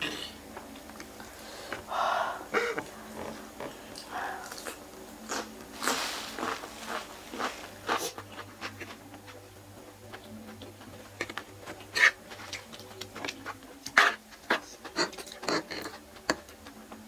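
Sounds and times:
chewing: 3.2s - 9.4s.

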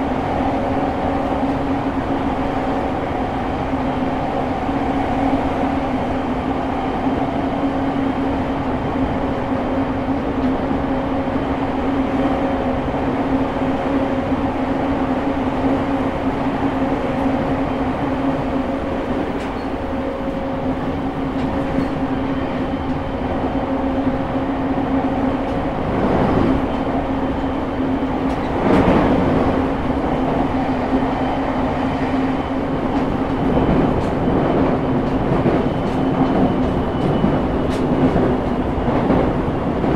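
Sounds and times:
wheels rumbling on rail: 0.0s - 39.9s.

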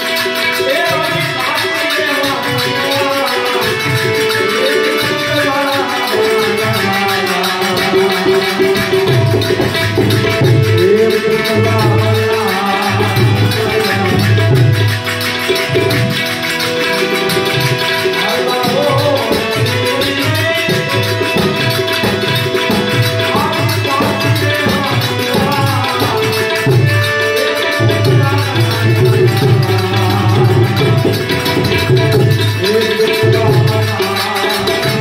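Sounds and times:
harmonium chords: 0.0s - 35.0s
man singing: 0.0s - 35.0s
rattling hand percussion: 0.0s - 35.0s
tabla drumming: 0.0s - 35.0s.

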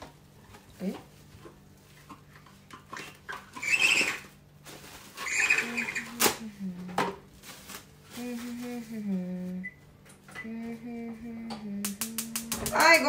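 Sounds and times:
paper scrubbing mushroom: 3.6s - 6.2s.

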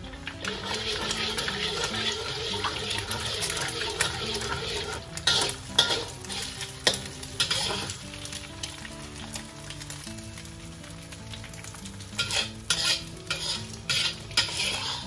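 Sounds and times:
egg sizzling in oil: 0.0s - 15.0s
spatula scraping a wok: 0.4s - 8.3s, 12.1s - 15.0s
spatula clacking on wok: 0.4s - 8.4s, 11.6s - 15.0s.

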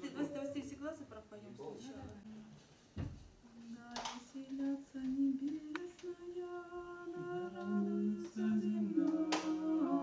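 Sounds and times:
low voice singing: 3.5s - 10.0s
small choir chanting: 4.0s - 10.0s.

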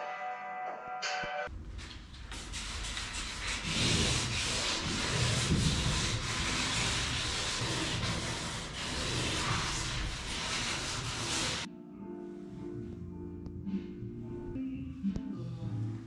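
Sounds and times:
hand sanding wood: 2.2s - 11.7s.

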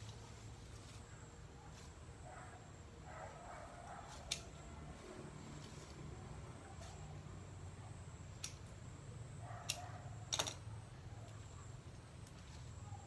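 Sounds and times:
faint low hum: 0.0s - 13.0s
stems snapping: 4.2s - 4.6s.

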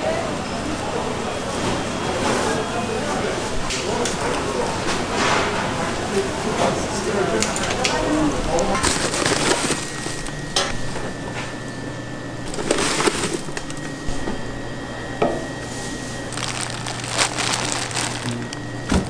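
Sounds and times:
scraping and rustling: 8.7s - 10.3s, 12.5s - 13.9s, 16.3s - 18.6s.

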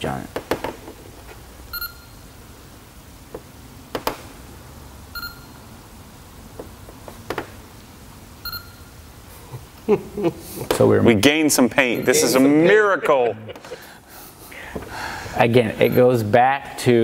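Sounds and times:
gauge short beeps: 1.7s - 2.3s, 5.1s - 5.6s, 8.4s - 8.9s, 11.9s - 12.4s, 15.8s - 16.2s.

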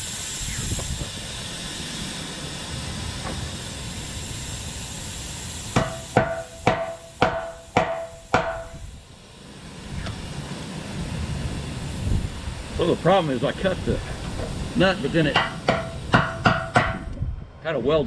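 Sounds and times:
steady hiss: 0.0s - 17.2s
hammer blows on steel: 5.8s - 8.9s, 15.3s - 17.1s.

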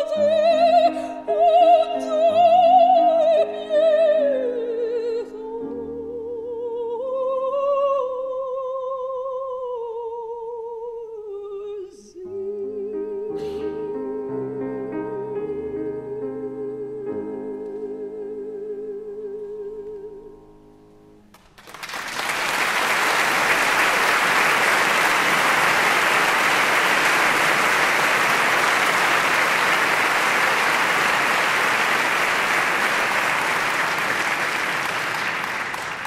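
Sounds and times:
audience applause: 21.3s - 36.0s.

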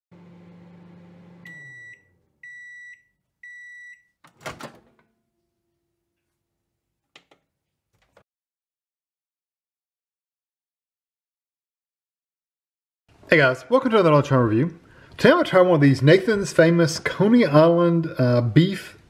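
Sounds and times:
microwave oven humming: 0.1s - 2.6s.

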